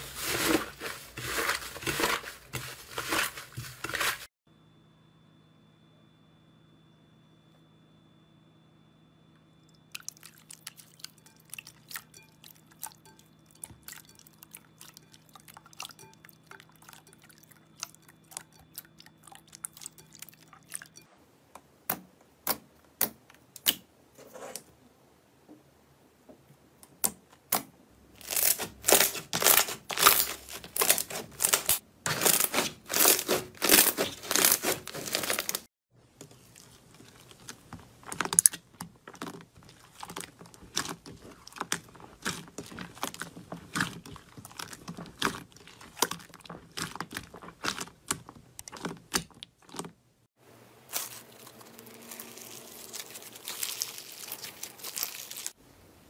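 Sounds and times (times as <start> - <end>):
slime squishing and crackling: 0.0 - 4.3, 28.2 - 49.9, 50.9 - 55.6.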